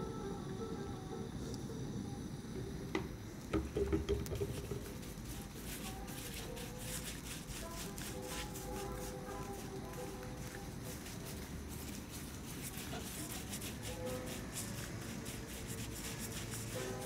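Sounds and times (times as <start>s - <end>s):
stick knocking on metal pot: 3.0s - 4.9s
brush scratching on frame drum: 4.2s - 17.0s.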